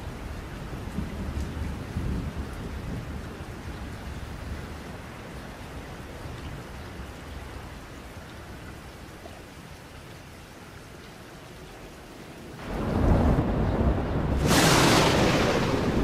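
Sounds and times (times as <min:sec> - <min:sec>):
steady rain: 0:00.0 - 0:16.0
distant thunder rumble: 0:12.6 - 0:16.0.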